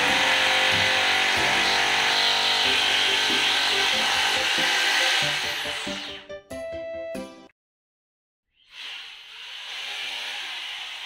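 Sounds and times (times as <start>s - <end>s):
power tool running: 0.0s - 6.2s, 8.7s - 11.0s
background music: 0.0s - 7.5s.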